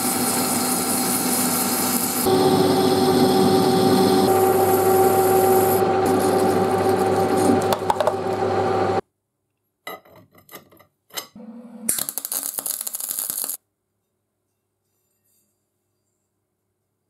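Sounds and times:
metal lathe humming: 0.0s - 9.0s.

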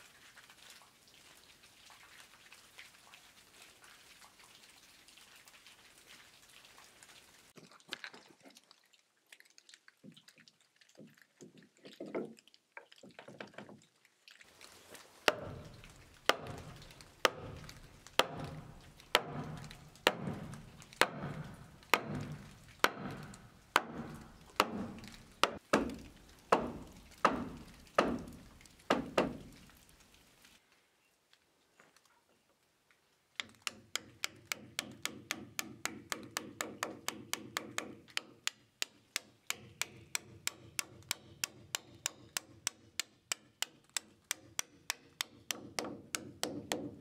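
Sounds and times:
wooden mallet striking wood: 15.2s - 29.5s, 33.4s - 47.0s.

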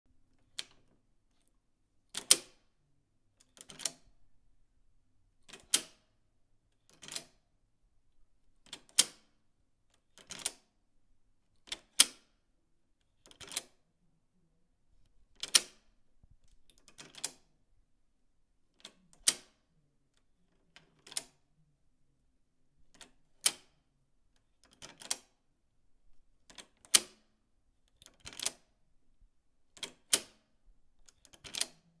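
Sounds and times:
lock bolt clicking: 28.0s - 28.6s, 31.1s - 31.8s.

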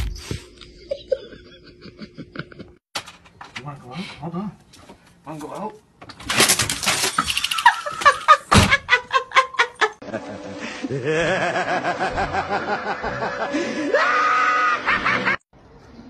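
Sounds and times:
person laughing: 0.6s - 2.8s, 7.3s - 15.4s
wavering laugh-like vocal sounds: 0.6s - 2.8s, 7.3s - 15.4s.

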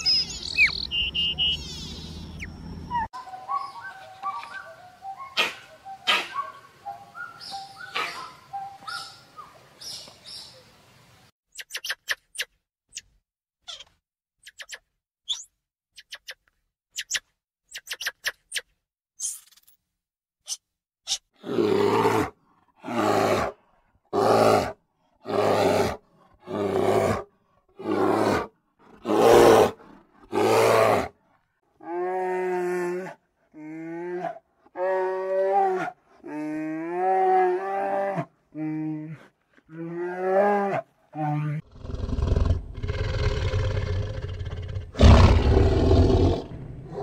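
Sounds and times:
high chirps and clicks: 0.0s - 5.4s, 11.5s - 13.2s, 13.8s - 19.7s
big cat roaring: 39.8s - 47.0s.

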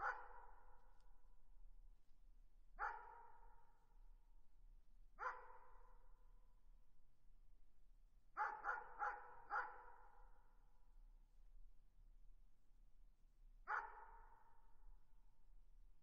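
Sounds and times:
distant dog barking: 2.8s - 3.3s, 5.2s - 5.6s, 8.4s - 10.0s, 13.7s - 14.2s.

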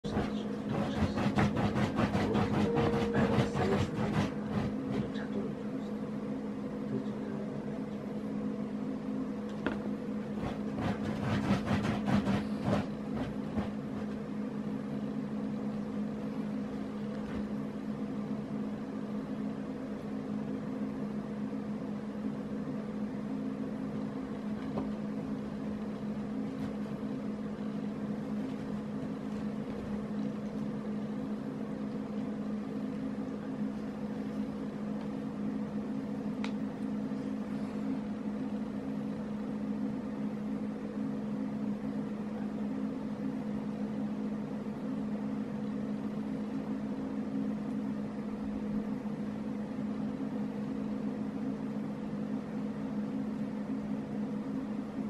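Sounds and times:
steady low hum: 0.0s - 55.0s
dog scratching fabric: 0.1s - 5.1s, 10.4s - 14.2s.

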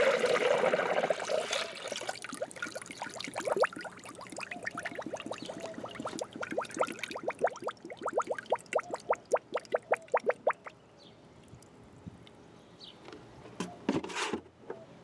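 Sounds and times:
liquid dripping and gurgling: 0.0s - 10.7s
liquid pouring into a funnel: 0.0s - 10.7s.

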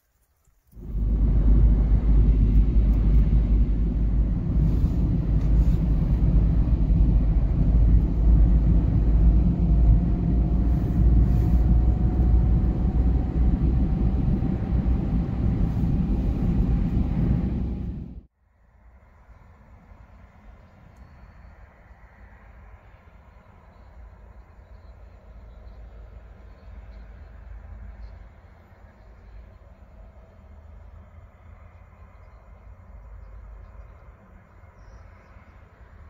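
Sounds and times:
faint rising whine: 0.7s - 32.4s
tyres and engine rumbling: 0.8s - 18.3s.

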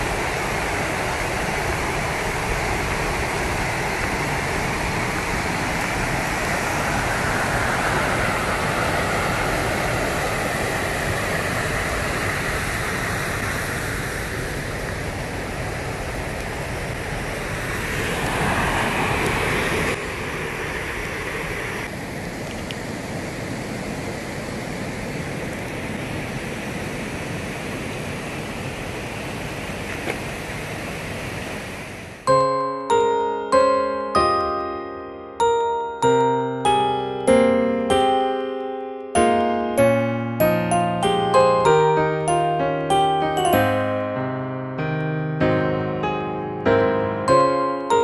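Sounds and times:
river water rushing: 0.0s - 32.7s.

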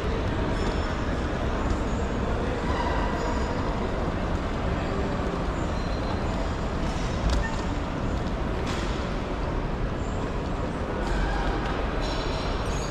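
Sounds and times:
airport ambience rumble: 0.0s - 12.9s.

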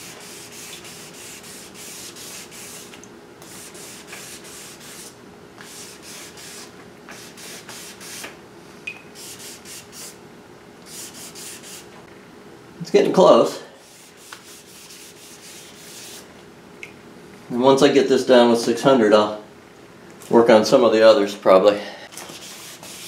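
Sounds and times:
sandpaper rubbing back and forth: 0.0s - 8.3s, 9.2s - 10.2s, 10.9s - 11.9s, 13.8s - 16.3s, 22.2s - 23.0s.

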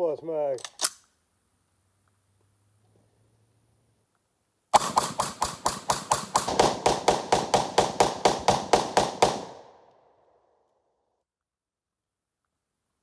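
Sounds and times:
gunshot echo: 4.8s - 9.9s
rifle shots: 4.8s - 9.9s.

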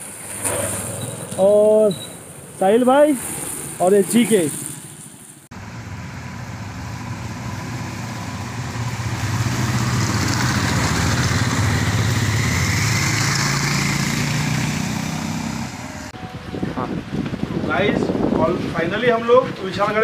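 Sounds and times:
motorcycle engines riding by: 5.6s - 16.2s.

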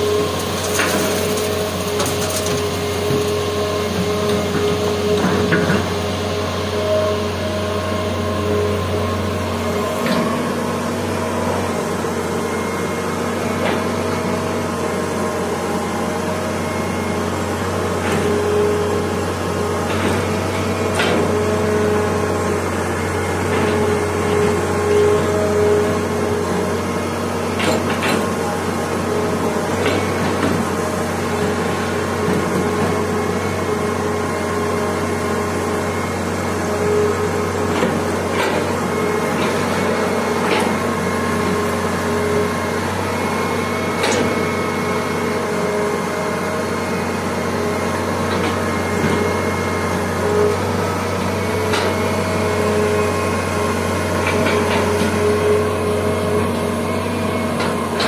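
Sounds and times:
excavator engine humming: 0.0s - 58.0s
sharp knocks from excavator: 4.6s - 5.9s, 19.9s - 21.4s, 44.0s - 44.5s.

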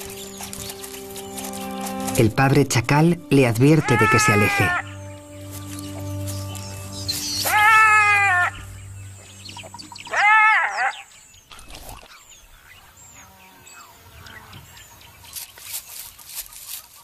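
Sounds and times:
jackal warning calls: 3.7s - 5.0s, 7.0s - 8.7s, 9.5s - 14.6s.

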